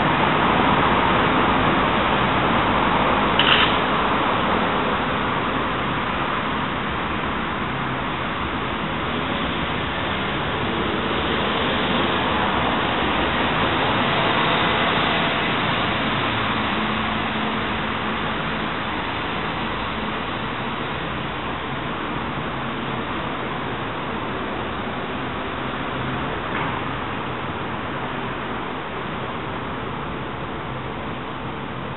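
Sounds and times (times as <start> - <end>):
street traffic rush: 0.0 - 31.9
brief click: 3.4 - 3.8.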